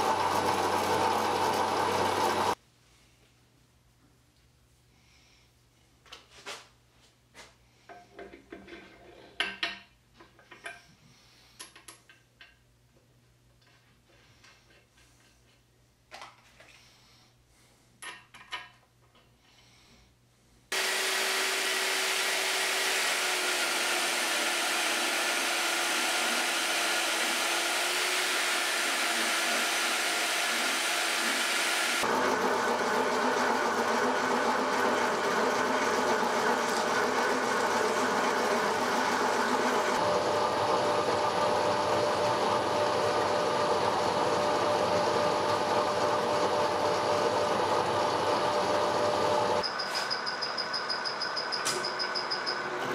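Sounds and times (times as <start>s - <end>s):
milling machine cutting metal: 0.0s - 2.6s, 20.8s - 52.9s.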